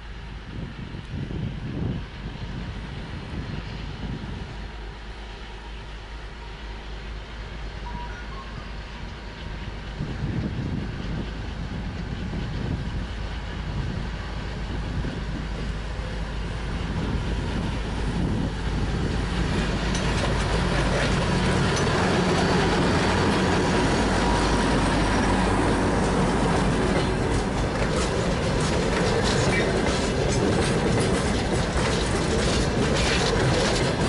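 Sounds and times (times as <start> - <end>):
diesel locomotive engine under load: 0.0 - 34.0
freight wagons rolling by: 17.4 - 34.0.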